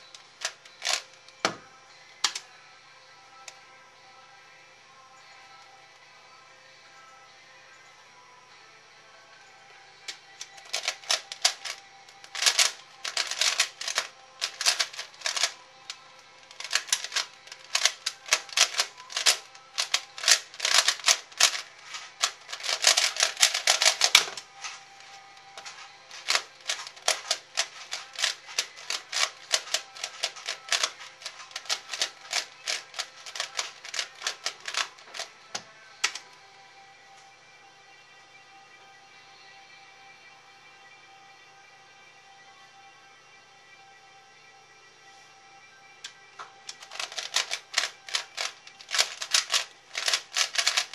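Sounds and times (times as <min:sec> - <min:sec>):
plastic puzzle cube clicking: 0:00.1 - 0:01.1, 0:02.2 - 0:02.4, 0:10.4 - 0:15.6, 0:16.5 - 0:24.5, 0:26.1 - 0:35.3, 0:46.7 - 0:50.9.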